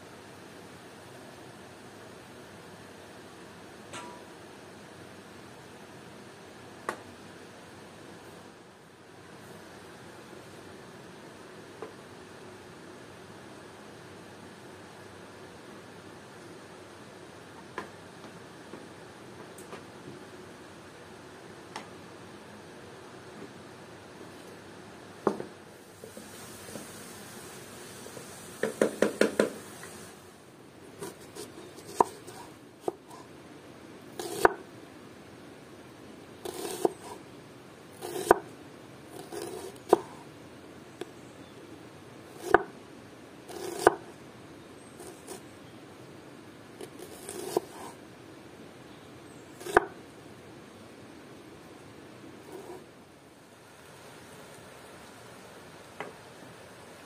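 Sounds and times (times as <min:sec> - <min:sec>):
knife chopping on cutting board: 0:28.7 - 0:29.6, 0:31.0 - 0:33.0, 0:34.2 - 0:34.6, 0:36.5 - 0:37.2, 0:38.0 - 0:38.5, 0:42.4 - 0:42.7, 0:43.5 - 0:44.1, 0:46.8 - 0:47.9, 0:49.6 - 0:50.0.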